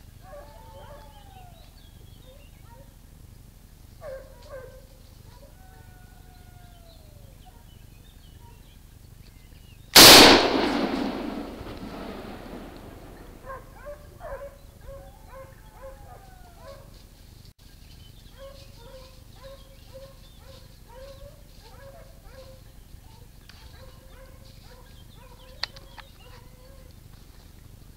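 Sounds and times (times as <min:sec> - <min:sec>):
dogs yelping and baying: 0:00.2 - 0:03.0, 0:04.0 - 0:07.7, 0:13.4 - 0:17.0, 0:18.3 - 0:22.7, 0:23.5 - 0:26.9
loud gunshot echoing: 0:10.0 - 0:13.5.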